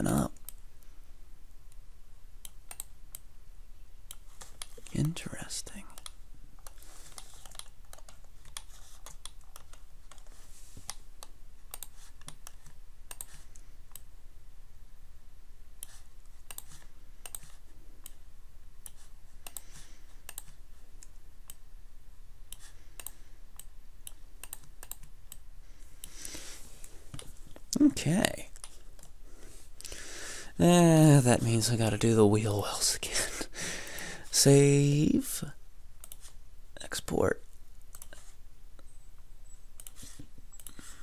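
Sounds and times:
keyboard and mouse clicking: 2.4 - 3.3, 5.9 - 14.1, 15.8 - 18.2, 18.8 - 21.6, 22.5 - 25.4, 36.0 - 36.3, 37.9 - 38.2, 39.8 - 40.8.

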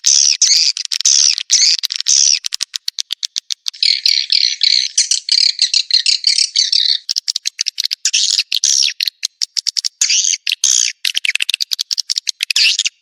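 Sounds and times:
high-pitched rapid dry clicks: 0.0 - 3.8, 7.1 - 8.1, 9.0 - 10.1
recorded bird twittering: 0.0 - 13.0.

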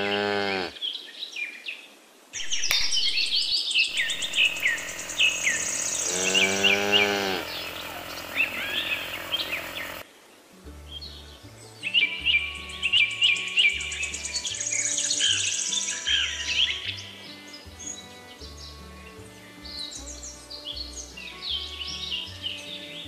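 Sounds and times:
cow mooing: 0.0 - 0.8, 3.9 - 10.0
small birds chirping: 2.4 - 10.1, 10.9 - 23.0.

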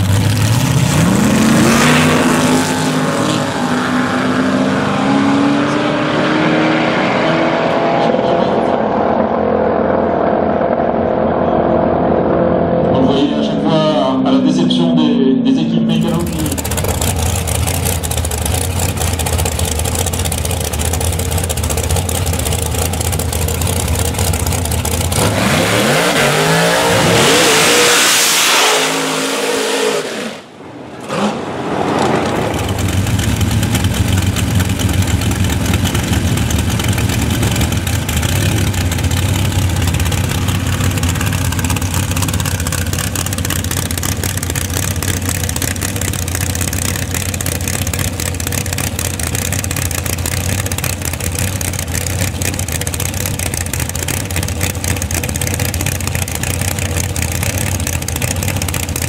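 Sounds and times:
engine revving hard: 0.0 - 9.3, 15.6 - 17.4, 25.0 - 34.8
engine idling: 15.7 - 25.5, 31.6 - 59.0.

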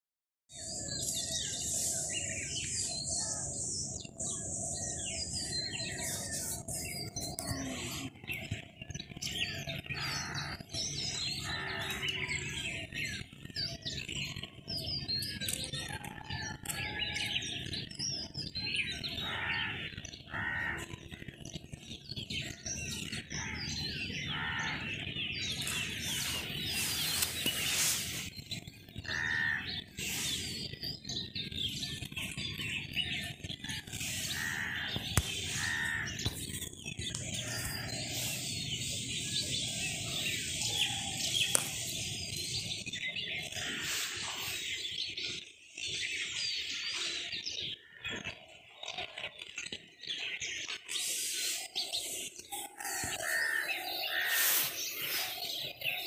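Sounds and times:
birds chirping and calling: 0.5 - 56.0
steady outdoor hiss: 0.5 - 56.0.

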